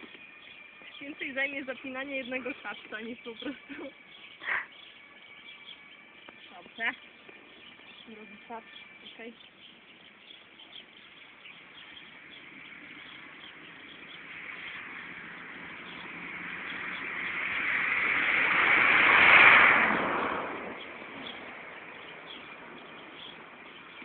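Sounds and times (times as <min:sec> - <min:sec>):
faint birds chirping: 0:00.0 - 0:18.8, 0:20.1 - 0:24.0
vehicle passing by: 0:00.2 - 0:24.0.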